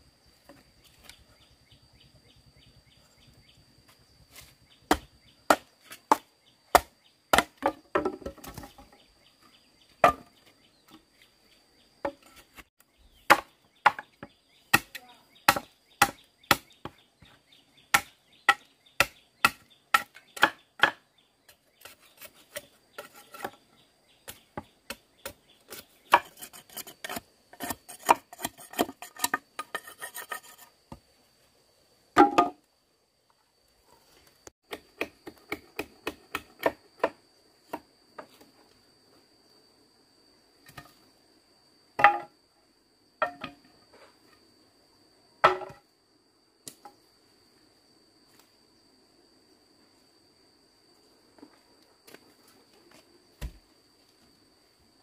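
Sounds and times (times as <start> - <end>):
blade chopping wood: 4.9 - 8.8, 14.7 - 16.8, 17.9 - 21.0.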